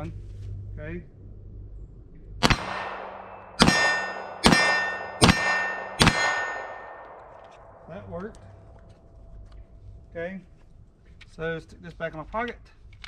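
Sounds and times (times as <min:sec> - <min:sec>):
pistol shots: 0:02.4 - 0:07.9
steel target ringing: 0:02.4 - 0:08.1.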